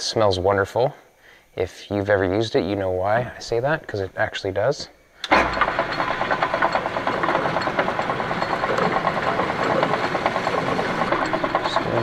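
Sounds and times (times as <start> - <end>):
metal lathe cutting buzz: 5.3 - 12.0.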